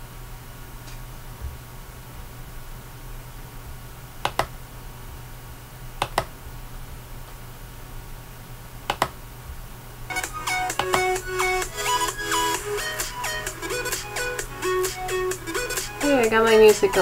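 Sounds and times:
sharp clicks of computer controls: 4.2 - 4.6, 6.0 - 6.3, 8.9 - 9.2, 10.7 - 11.2
electronic music with plucked notes: 10.1 - 17.0.

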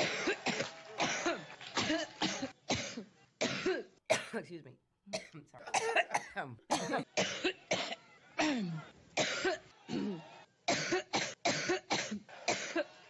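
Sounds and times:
woman coughing over telephone: 0.0 - 4.4, 5.1 - 10.1.

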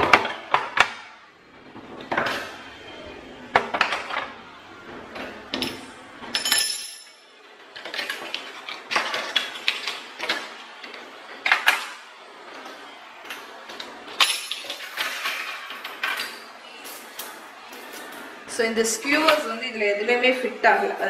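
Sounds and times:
metal utensils clinking: 5.6 - 10.1, 13.3 - 18.3.

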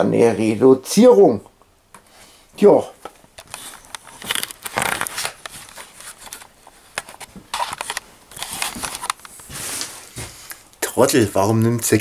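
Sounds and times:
camcorder handling noise: 3.4 - 9.4.

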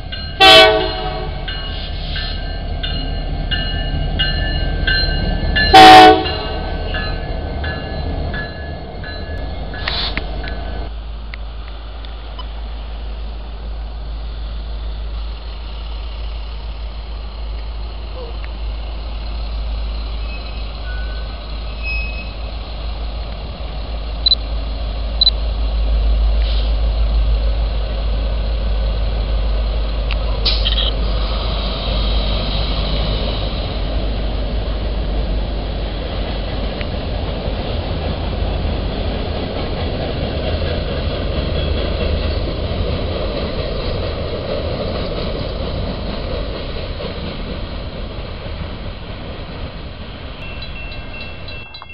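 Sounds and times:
freight train rumbling: 0.0 - 51.9
short high beeps: 50.4 - 51.9.

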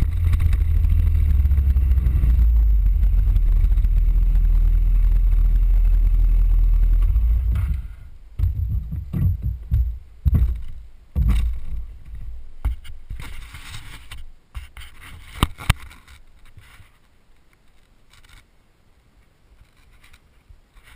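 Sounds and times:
low thumps: 0.0 - 13.2
scooter riding rumble: 0.0 - 14.2.

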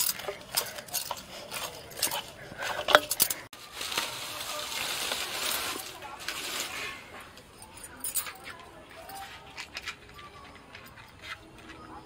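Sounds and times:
bangles clinking on steel bowl: 0.0 - 3.5, 7.4 - 9.9.

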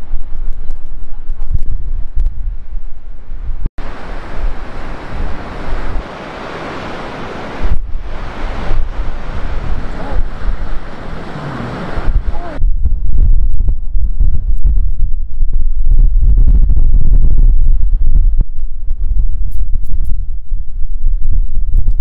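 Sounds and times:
wind buffeting microphone: 0.0 - 22.0
surf breaking on rocky shore: 3.8 - 12.6.

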